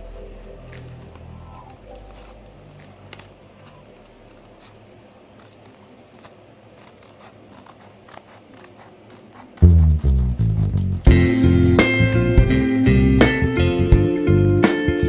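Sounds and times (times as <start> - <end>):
scissors snipping paper: 2.0 - 10.9.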